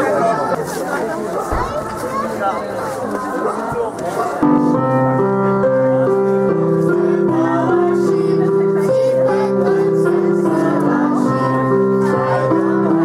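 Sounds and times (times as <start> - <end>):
electronic keyboard chords: 1.7 - 13.0
voices singing: 5.6 - 13.0.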